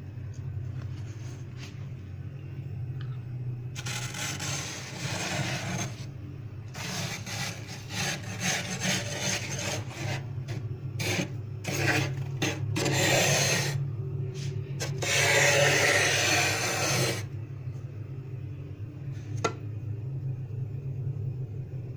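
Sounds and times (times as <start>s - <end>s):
low steady hum: 0.0s - 21.9s
frost being scraped: 3.8s - 6.1s, 6.7s - 13.8s, 14.4s - 17.3s.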